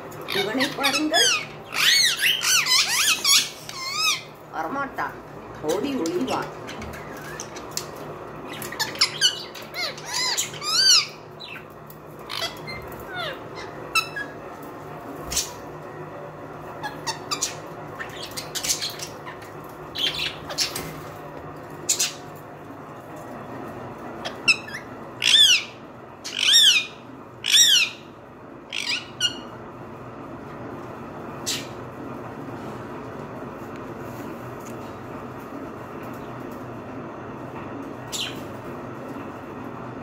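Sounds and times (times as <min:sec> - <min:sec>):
parrots chirping and squawking: 0:00.1 - 0:15.8, 0:16.6 - 0:23.2, 0:23.9 - 0:29.6, 0:31.3 - 0:31.9, 0:38.0 - 0:38.7
loud ringing parrot calls: 0:00.2 - 0:04.4, 0:08.4 - 0:14.5, 0:24.2 - 0:29.6.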